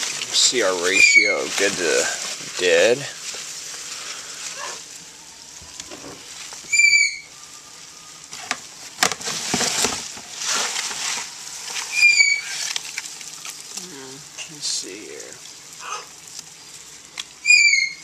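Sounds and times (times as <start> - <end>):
cardboard rustling and scraping: 5.6 - 6.8, 8.3 - 13.7
bird chirping: 5.6 - 7.4, 11.9 - 12.6, 17.4 - 18.0.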